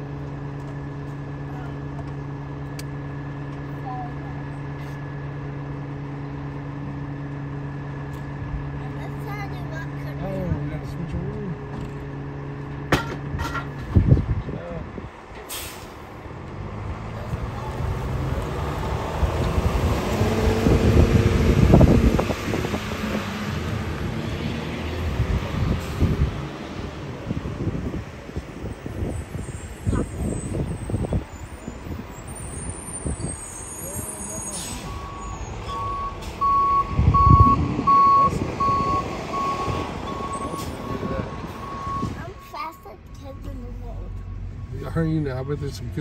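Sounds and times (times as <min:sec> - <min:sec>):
garbage truck engine: 0:00.0 - 0:46.0
truck rattles: 0:11.1 - 0:23.5
truck reversing alarm beeping: 0:28.9 - 0:44.4.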